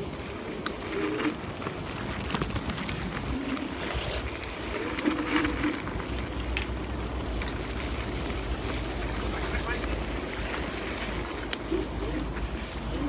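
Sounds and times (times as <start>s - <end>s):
wind on microphone: 0.0s - 9.4s
scooter tyres rumbling on dirt: 0.0s - 13.0s
knocks and rattles over bumps: 1.3s - 12.9s.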